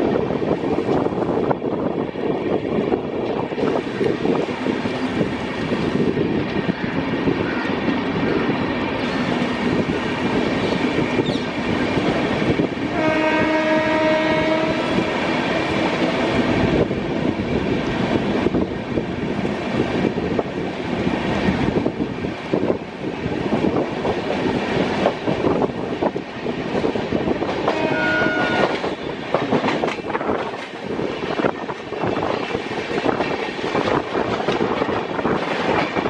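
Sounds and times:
train wheels rumbling on track: 0.0 - 36.0
train horn blast: 12.9 - 15.2, 27.6 - 29.0.

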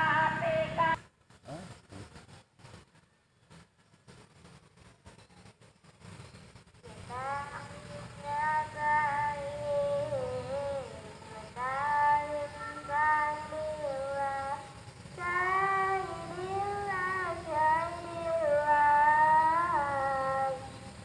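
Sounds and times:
high voice singing: 0.0 - 1.0, 7.1 - 21.0.

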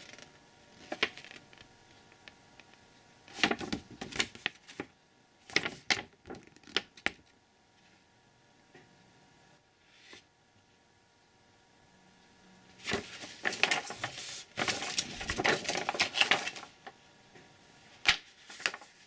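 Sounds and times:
paper crinkling and crackling: 0.0 - 2.7, 3.3 - 7.3, 12.8 - 17.0, 18.0 - 19.0.

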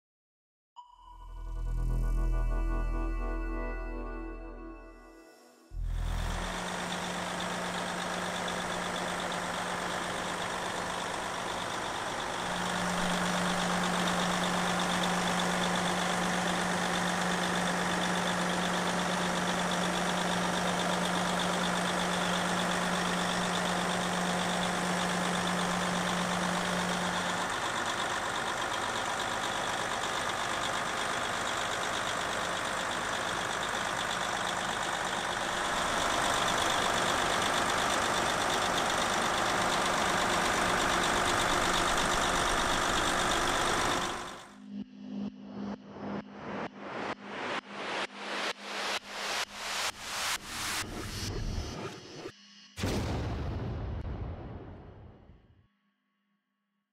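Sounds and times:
diesel truck engine idling: 5.8 - 44.6.

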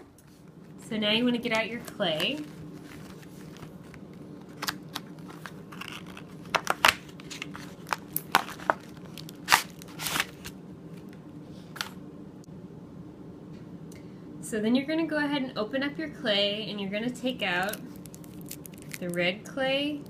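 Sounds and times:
packaging crinkling and crackling: 1.8 - 10.6, 17.6 - 19.2.

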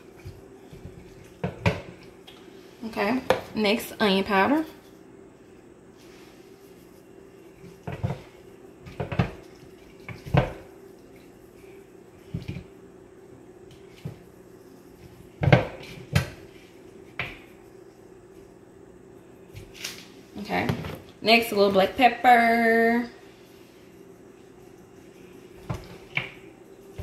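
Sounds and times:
steady low hum: 0.0 - 27.0
shaker and dish knocking: 8.9 - 10.7.

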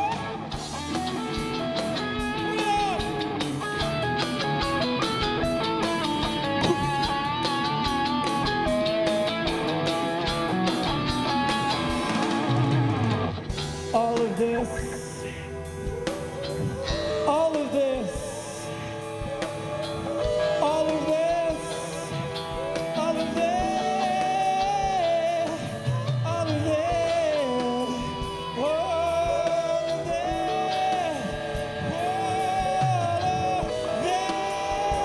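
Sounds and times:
live rock band playing: 0.0 - 35.0
man singing long held notes: 13.8 - 35.0.

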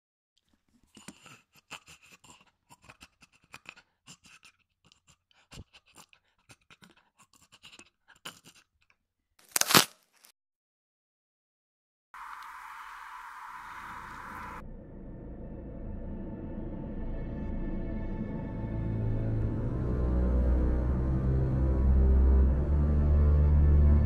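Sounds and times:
loud crack and rustle: 9.4 - 10.3
twigs crackling and snapping: 9.4 - 10.3.

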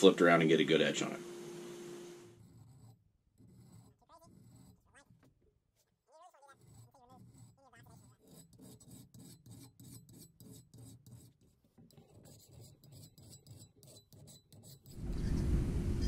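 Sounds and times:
hand file rasping on steel: 2.4 - 5.1, 6.2 - 15.0.

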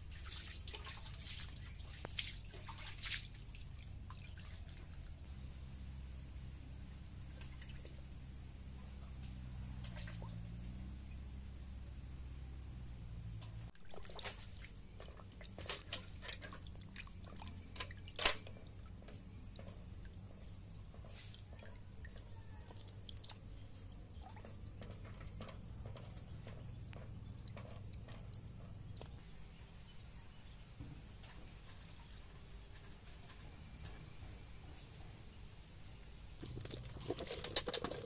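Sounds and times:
water splashing in metal bucket: 0.1 - 5.2, 13.7 - 29.2.

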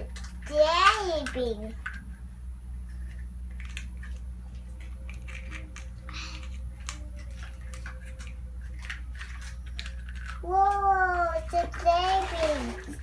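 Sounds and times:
steady low hum: 0.0 - 13.0
hands handling plastic egg: 2.9 - 13.0
jelly beans clicking on plastic: 3.1 - 13.0.

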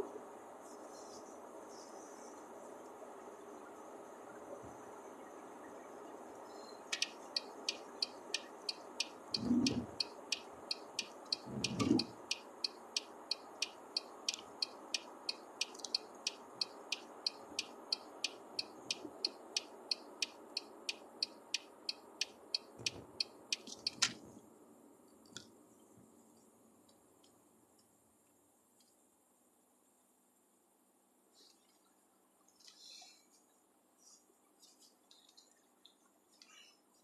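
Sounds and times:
road noise: 0.0 - 25.8
turn signal ticking: 6.9 - 24.1.

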